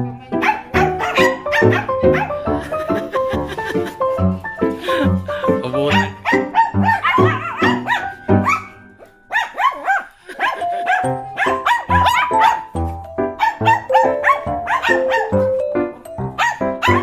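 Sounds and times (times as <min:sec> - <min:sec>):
dogs barking excitedly: 0:00.4 - 0:02.4, 0:05.9 - 0:12.8, 0:13.4 - 0:15.6, 0:16.3 - 0:17.0.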